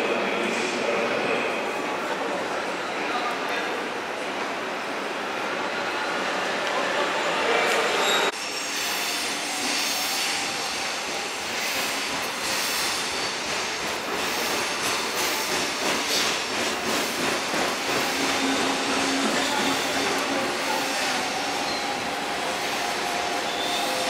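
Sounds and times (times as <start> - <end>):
train wheels rumbling on rails: 8.0 - 24.0.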